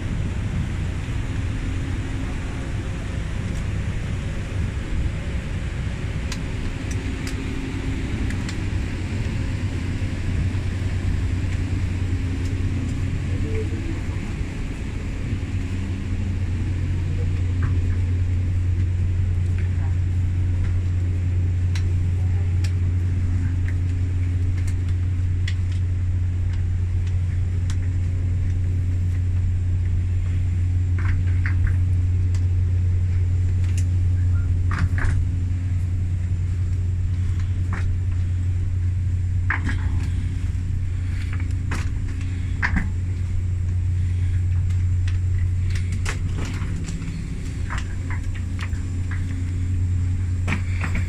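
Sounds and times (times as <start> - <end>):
low machine drone: 0.0 - 51.0.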